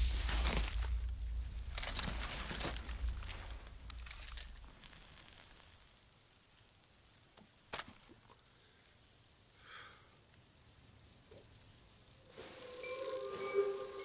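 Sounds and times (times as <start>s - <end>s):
faint low hiss: 0.0s - 14.0s
soft breathy sound: 8.3s - 10.2s.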